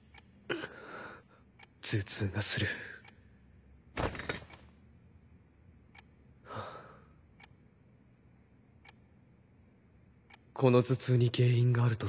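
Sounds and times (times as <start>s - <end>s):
man sighing: 0.5s - 1.2s, 6.5s - 7.1s.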